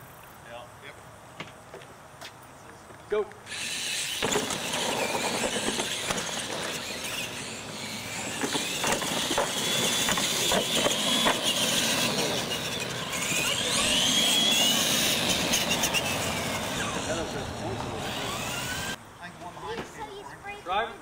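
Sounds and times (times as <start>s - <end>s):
toy truck motors whining: 3.4s - 19.0s.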